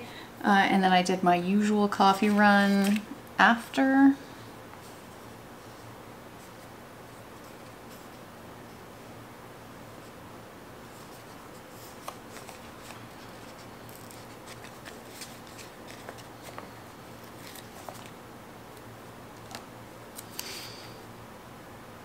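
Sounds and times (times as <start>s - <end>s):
paper rustling: 2.1s - 3.1s, 10.9s - 18.2s.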